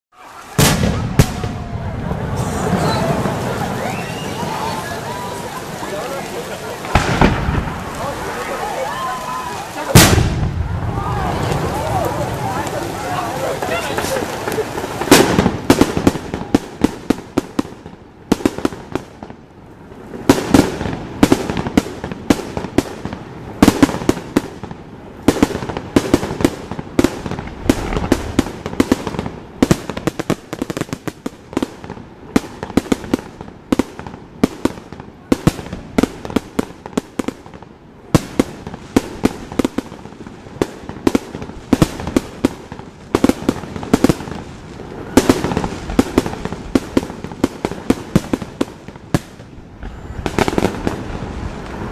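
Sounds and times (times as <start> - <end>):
fireworks bursting: 0.2 - 51.9.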